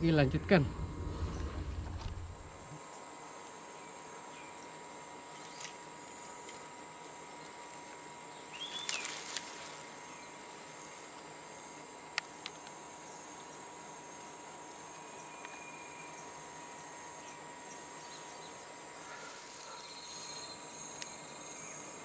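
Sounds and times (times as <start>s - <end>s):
burst of noise: 0.0s - 2.8s
steady low tone: 0.0s - 2.8s
insects droning: 0.0s - 22.0s.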